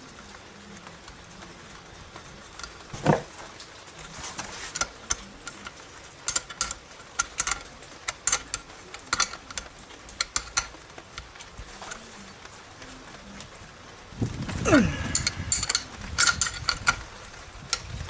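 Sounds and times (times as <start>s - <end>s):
heavy metal clunk: 2.9s - 3.3s
wrench clicking on metal screws: 4.6s - 12.0s, 15.1s - 18.0s.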